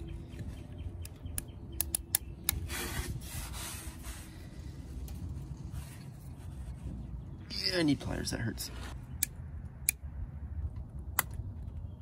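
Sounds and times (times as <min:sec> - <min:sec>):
sharp clicks: 0:01.0 - 0:02.6.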